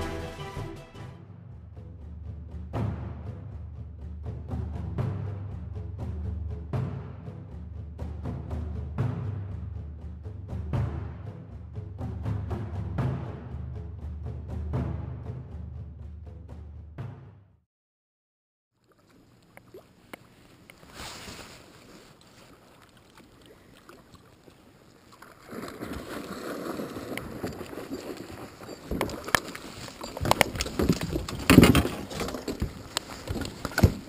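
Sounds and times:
water sloshing against boat: 18.8 - 34.0
water splashing: 18.8 - 34.0.

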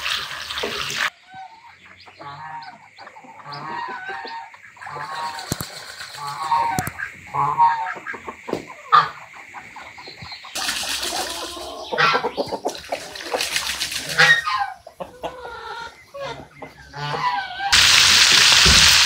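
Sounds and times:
chickens clucking: 0.6 - 17.8.

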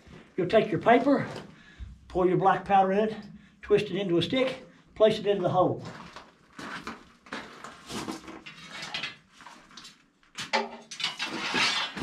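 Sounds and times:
hand tools scraping and knocking: 10.4 - 12.0.

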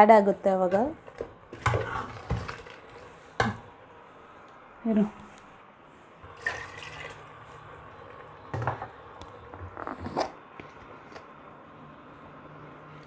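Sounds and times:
liquid pouring into a pot: 6.3 - 7.5.

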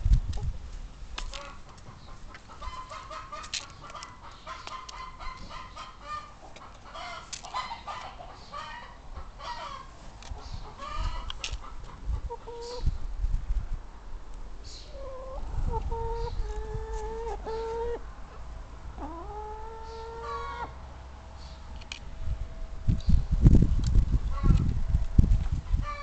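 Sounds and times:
hens clucking: 1.2 - 13.0, 14.9 - 20.8.

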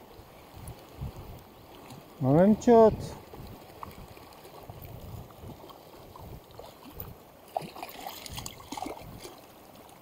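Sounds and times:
river current lapping: 0.0 - 10.0
short splash in water: 7.5 - 9.4.

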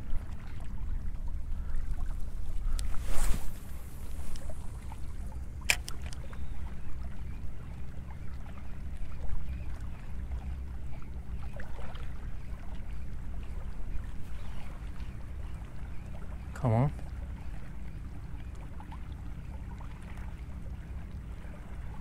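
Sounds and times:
wind rumble on microphone: 0.0 - 15.0
light water sounds: 0.0 - 22.0
sharp click: 5.6 - 6.2.

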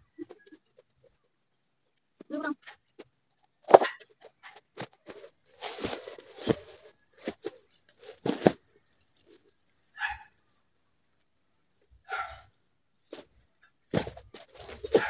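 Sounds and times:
plants rustling: 2.2 - 10.2, 11.9 - 15.0
boot footsteps through leaves: 5.5 - 7.4.

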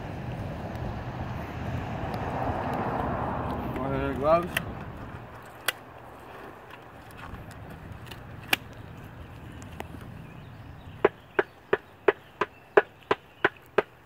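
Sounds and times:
sharp evenly spaced taps: 11.0 - 14.0.

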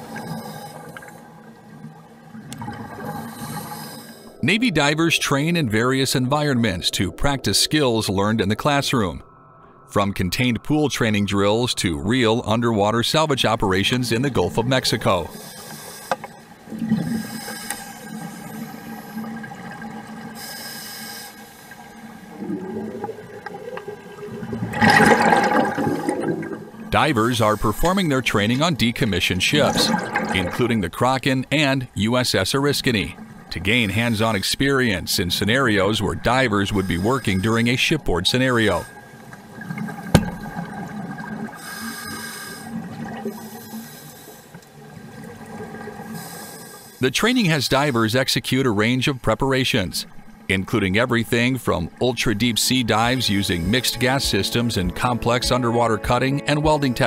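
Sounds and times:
bubbles gurgling: 0.0 - 9.2, 16.6 - 17.4, 22.0 - 31.0, 32.8 - 41.7, 42.6 - 43.5
divers breathing through regulators: 0.1 - 1.3, 3.0 - 4.4, 15.3 - 19.3, 20.4 - 21.9, 36.7 - 37.6, 41.6 - 44.6, 46.1 - 47.0.

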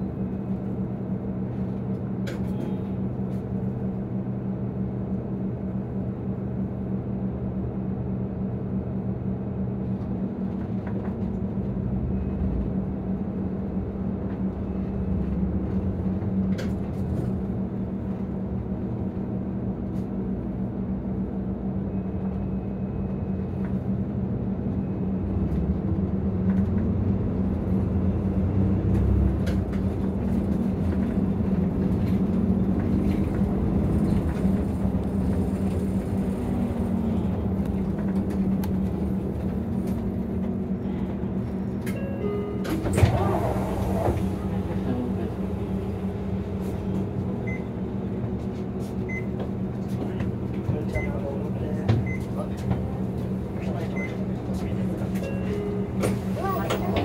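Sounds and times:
bus diesel engine running: 0.0 - 57.0.

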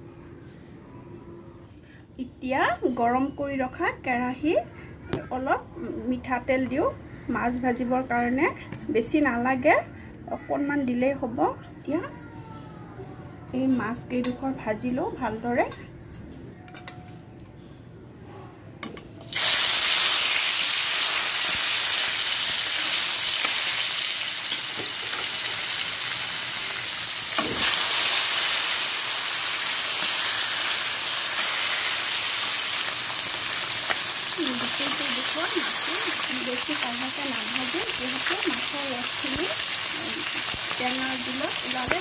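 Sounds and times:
fish sizzling in hot oil: 19.2 - 42.0.

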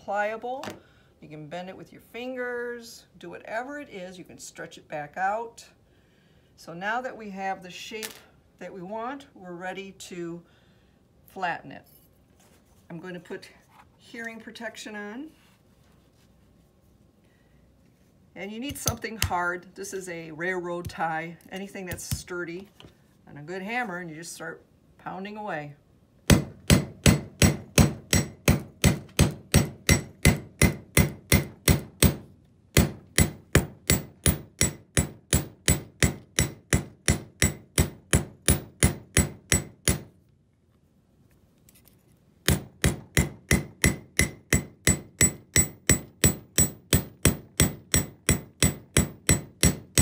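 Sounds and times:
hammer striking wire on metal: 26.3 - 40.1, 42.4 - 50.0.

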